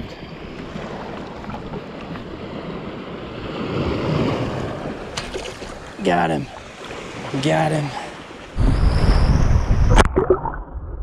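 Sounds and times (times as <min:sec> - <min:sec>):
shallow surf lapping: 0:00.0 - 0:09.4
wind on microphone: 0:08.5 - 0:11.0.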